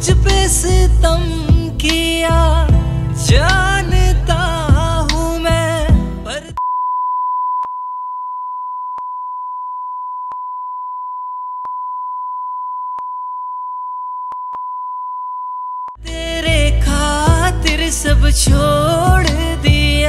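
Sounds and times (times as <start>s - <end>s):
song music: 0.0s - 6.6s, 16.0s - 20.0s
long electronic beep tone: 6.6s - 16.0s.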